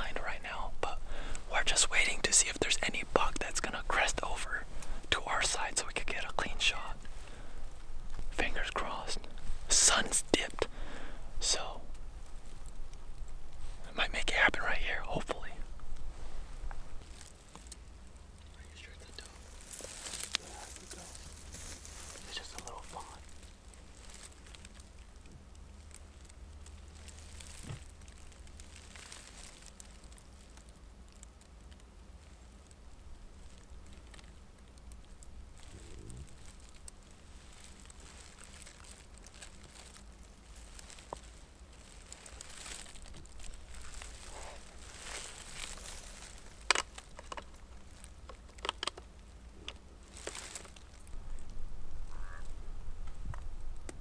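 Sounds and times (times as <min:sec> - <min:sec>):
faint rustling: 0:00.0 - 0:54.0
low steady rumble: 0:00.0 - 0:54.0.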